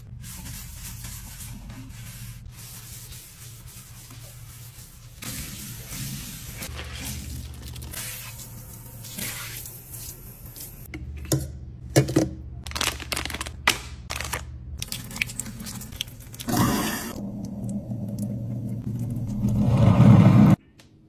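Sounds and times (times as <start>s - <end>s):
plastic crackling and crinkling: 12.7s - 16.4s.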